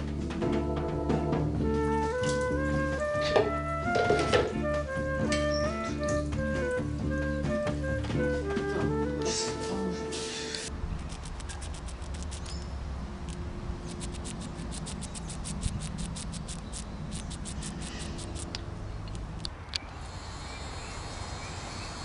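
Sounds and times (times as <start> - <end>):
squirrel rapid clicks: 11.0 - 12.6, 13.3 - 19.9.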